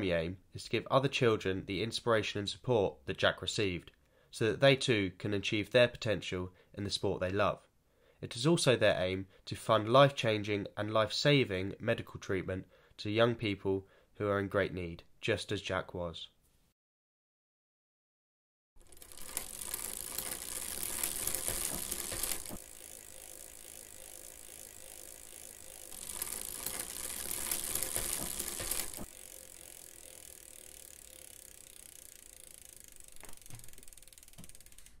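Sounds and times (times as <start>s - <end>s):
bicycle freewheel ticking: 18.8s - 35.0s.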